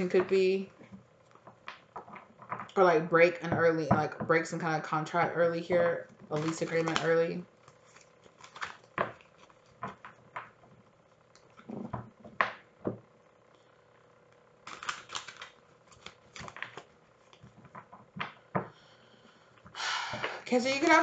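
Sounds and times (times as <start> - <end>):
cards being shuffled: 6.3 - 10.6, 14.6 - 18.3.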